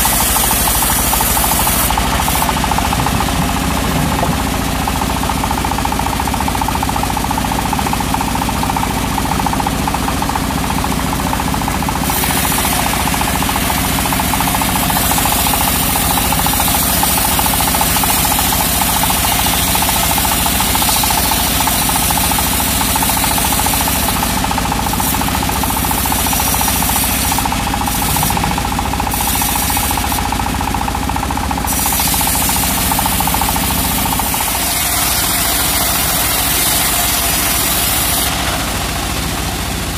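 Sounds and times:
blade hissing through wood: 0.0s - 2.6s, 12.0s - 30.5s, 31.7s - 38.8s
bandsaw mill running: 0.0s - 39.9s.

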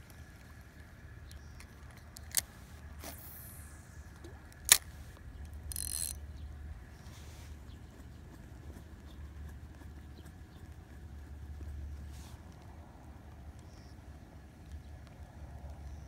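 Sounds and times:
fishing reel clicks: 4.6s - 6.2s
fishing reel whirring: 5.6s - 6.2s.

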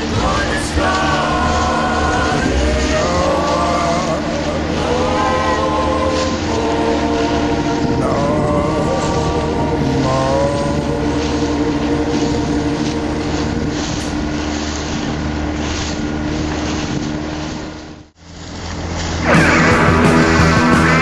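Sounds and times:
motorboat engine running: 0.0s - 21.0s
wind buffeting microphone: 0.0s - 21.0s
rock music: 19.2s - 21.0s.

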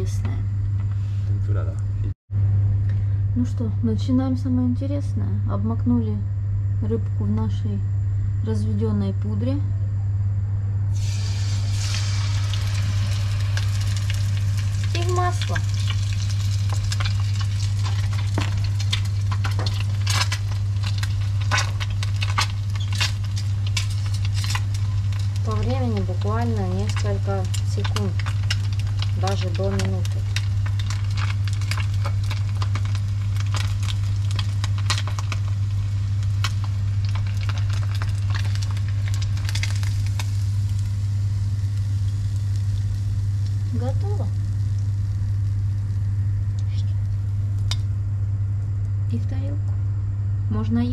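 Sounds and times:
steady low hum: 0.0s - 50.9s
batter crackling in hot oil: 10.9s - 49.0s.

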